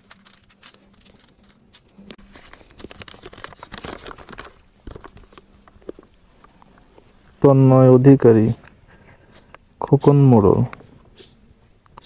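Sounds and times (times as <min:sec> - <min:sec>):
paper and blister strips crinkling: 0:00.0 - 0:07.4.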